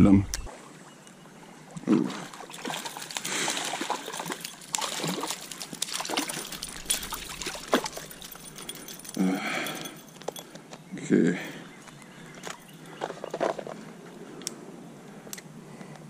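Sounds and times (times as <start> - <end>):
water splashing and dribbling: 1.7 - 10.1.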